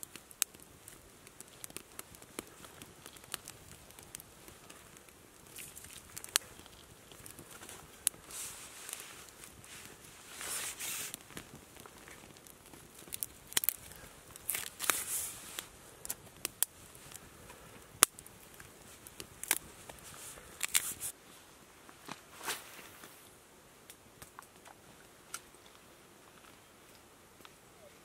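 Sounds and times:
fire pops: 0.0s - 21.2s, 22.0s - 25.8s
campfire crackling: 0.0s - 28.0s.

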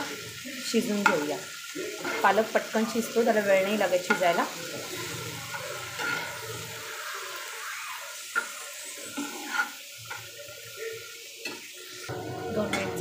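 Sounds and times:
vegetables sizzling in a pan: 0.0s - 13.0s
spatula scraping and tapping pan: 1.9s - 2.4s, 3.4s - 6.5s, 8.3s - 10.5s.

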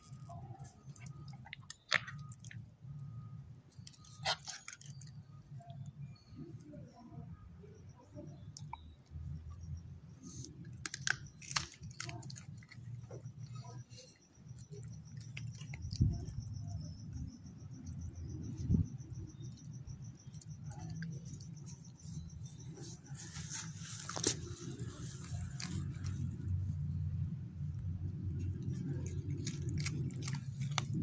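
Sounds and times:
teeth clicking on bone: 1.0s - 2.6s, 8.4s - 9.2s, 10.6s - 13.8s, 14.5s - 22.4s, 28.5s - 31.0s.

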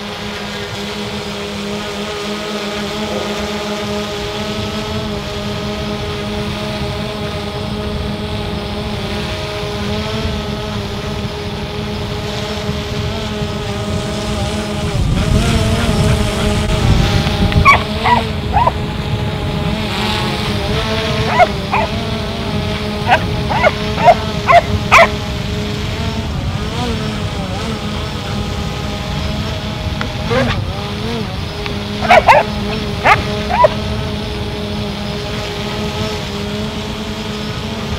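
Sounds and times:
drone rotors humming: 0.0s - 37.9s
dog barking: 17.6s - 18.8s, 21.3s - 22.0s, 23.1s - 25.2s, 32.0s - 33.8s.

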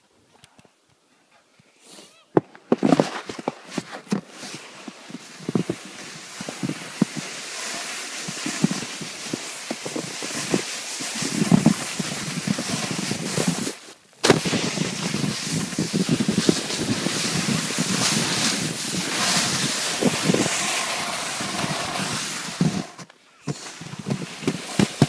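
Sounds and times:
small knocks and thuds: 2.4s - 4.3s
snowboard sliding over snow: 2.7s - 25.0s
wind rushing on microphone: 14.3s - 23.0s.

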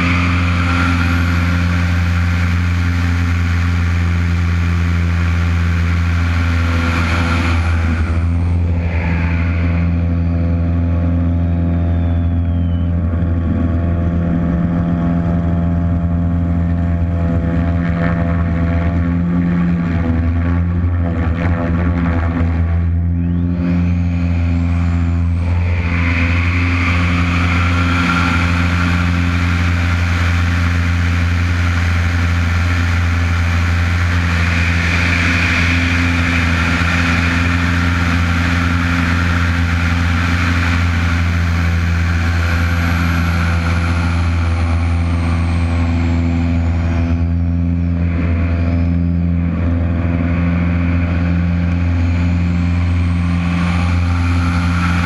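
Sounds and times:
faint high whine sliding downward: 0.0s - 55.0s
propeller plane engine in flight: 0.0s - 55.0s
air rushing past: 5.6s - 16.2s.

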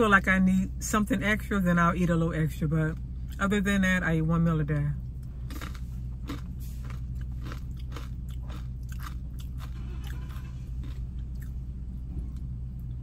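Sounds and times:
person chewing crunchy food: 5.2s - 11.7s.

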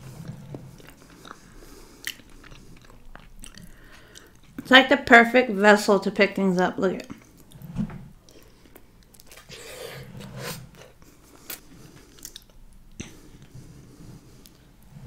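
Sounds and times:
chewing and wet mouth sounds: 0.0s - 5.0s, 8.2s - 9.5s, 10.7s - 13.5s.

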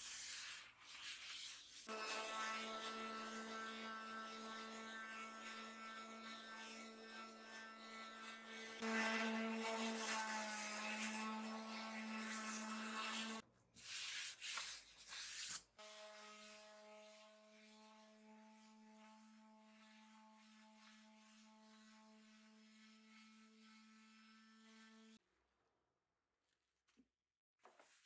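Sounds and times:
electric sander on wood: 1.9s - 13.4s.

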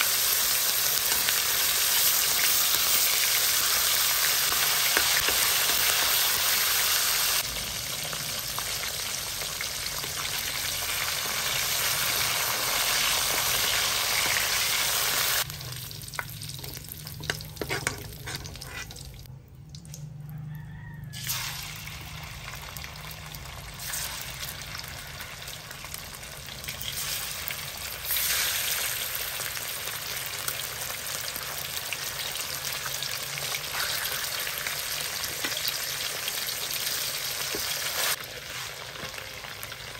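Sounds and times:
meat sizzling in hot oil: 0.0s - 19.3s, 21.2s - 39.9s
metal spatula scraping wok: 16.6s - 19.3s.

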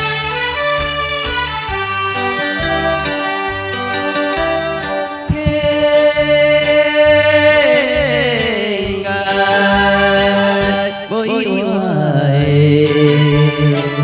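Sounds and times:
instrumental accompaniment: 0.0s - 14.0s
person singing with vibrato: 5.2s - 14.0s.

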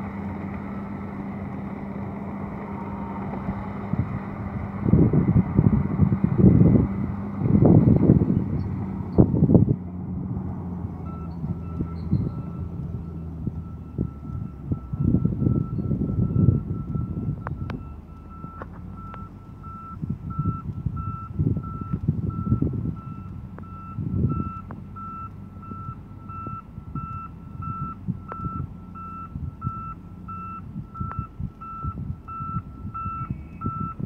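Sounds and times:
diesel engines running: 0.0s - 34.0s
reversing alarm beeps: 11.0s - 34.0s.

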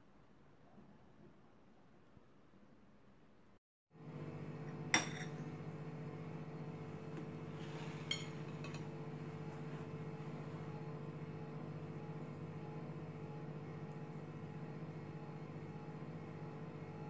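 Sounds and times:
steady machine hum: 4.0s - 17.0s.

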